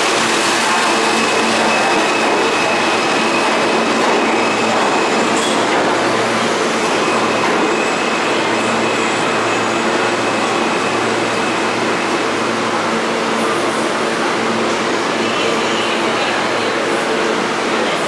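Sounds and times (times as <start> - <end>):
subway train rumbling on rails: 0.0 - 18.0
steady high-pitched tone: 0.2 - 17.4.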